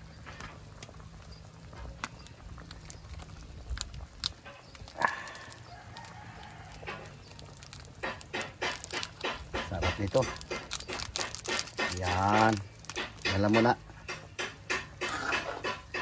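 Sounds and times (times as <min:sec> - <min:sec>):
soup boiling: 0:00.0 - 0:16.0
rooster crowing: 0:05.3 - 0:07.1.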